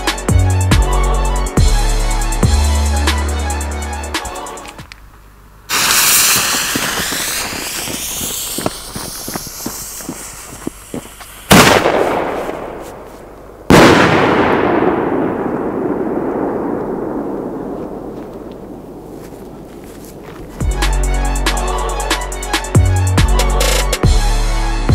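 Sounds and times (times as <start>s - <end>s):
small pops: 5.7s - 11.8s
sharp firework bangs: 5.7s - 13.1s, 13.7s - 18.8s
firework blast: 5.7s - 19.1s.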